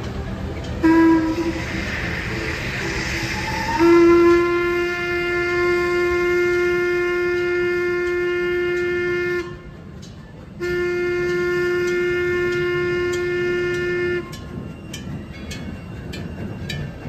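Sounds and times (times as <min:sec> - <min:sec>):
steam whistle blasts: 0:00.8 - 0:09.8, 0:10.6 - 0:14.4.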